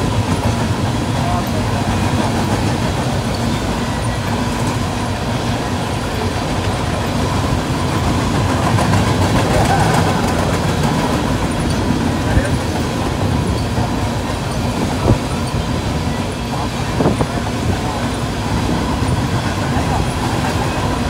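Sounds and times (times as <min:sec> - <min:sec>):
freight train wheels on rails: 0:00.0 - 0:21.0.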